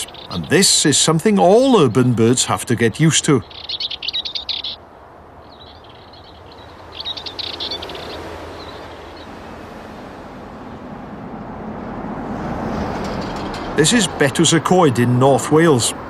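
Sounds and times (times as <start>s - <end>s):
bird singing rapid high chirps: 0.0s - 9.3s
cars passing close by: 0.0s - 16.0s
road traffic rumble: 0.0s - 16.0s.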